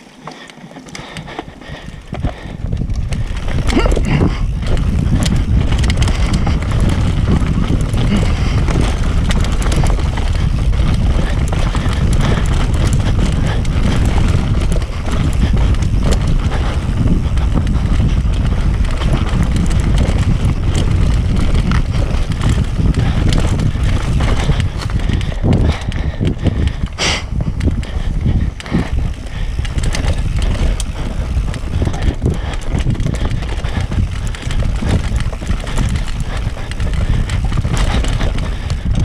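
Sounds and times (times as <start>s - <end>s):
bike clattering and rattling: 0.0s - 39.0s
wind buffeting microphone: 1.0s - 39.0s.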